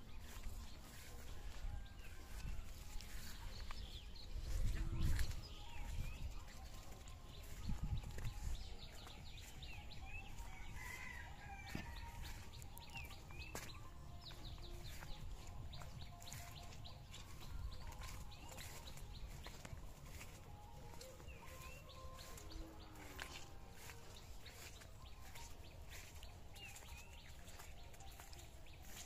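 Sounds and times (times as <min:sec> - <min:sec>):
birds chirping: 0:00.0 - 0:29.0.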